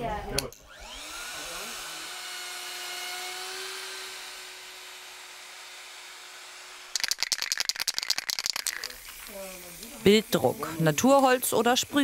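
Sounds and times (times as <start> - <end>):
router whining cutting wood: 0.6 - 6.9.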